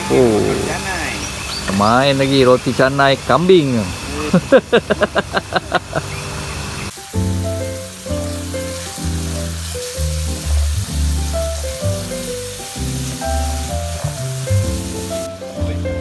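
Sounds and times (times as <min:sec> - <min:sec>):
paste frying in oil sizzling: 0:00.0 - 0:16.0
background music: 0:07.0 - 0:16.0.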